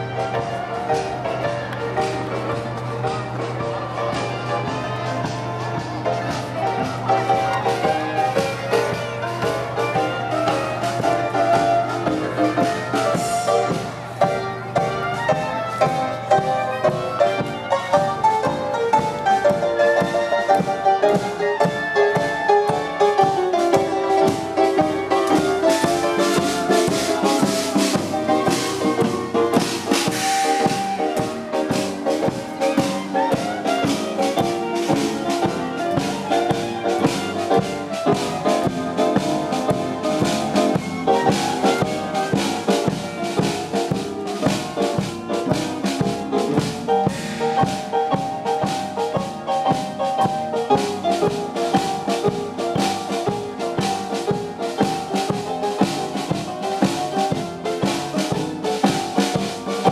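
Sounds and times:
live band playing: 0.0 - 59.9
rattling percussion beat: 0.0 - 59.9.

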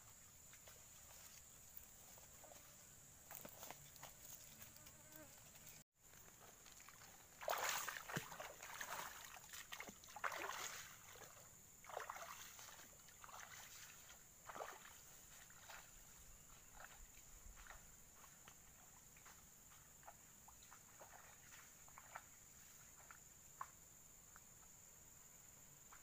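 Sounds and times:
footsteps crunching dry fronds: 0.4 - 10.6.

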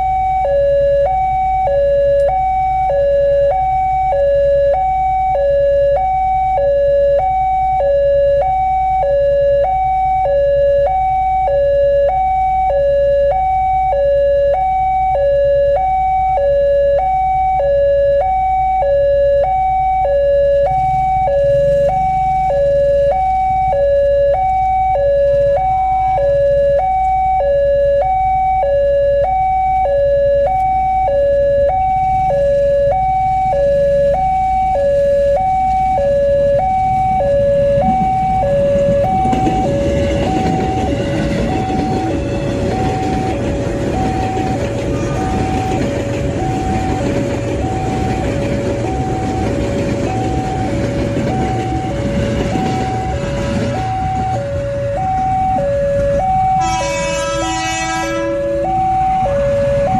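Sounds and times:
level-crossing two-tone alarm: 0.0 - 59.9
electric train passing: 20.7 - 22.6, 36.5 - 59.9.

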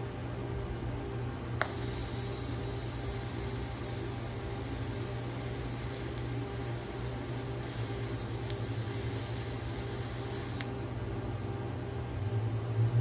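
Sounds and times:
low machine hum: 0.0 - 13.0
welding arc buzzing and hissing: 1.6 - 10.7
welding arc crack: 1.6 - 10.7.

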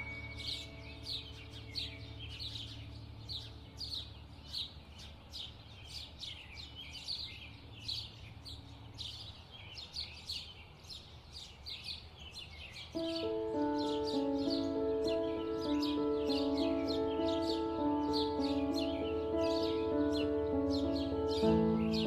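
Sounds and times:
birds chirping: 0.0 - 22.0.

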